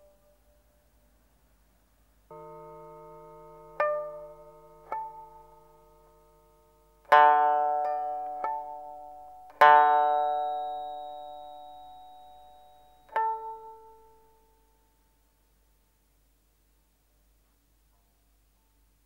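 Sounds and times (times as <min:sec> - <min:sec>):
plucked string film music: 0:02.3 - 0:14.4.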